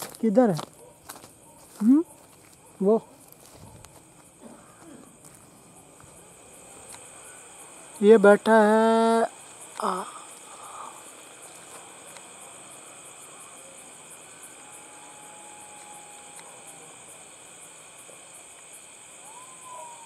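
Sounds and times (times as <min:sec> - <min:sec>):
crickets chirring: 0:00.0 - 0:20.0
faint long drawn-out tone: 0:06.2 - 0:18.2.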